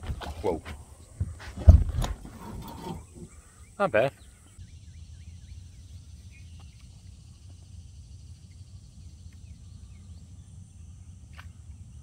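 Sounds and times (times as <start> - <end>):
insects chirring: 0.3 - 12.0
bird chirps: 2.9 - 11.6.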